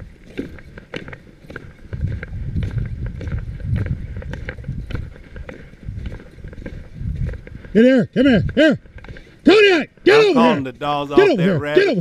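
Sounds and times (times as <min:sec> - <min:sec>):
footsteps on snowy gravel: 0:00.0 - 0:07.8
low microphone rumble: 0:01.7 - 0:08.9.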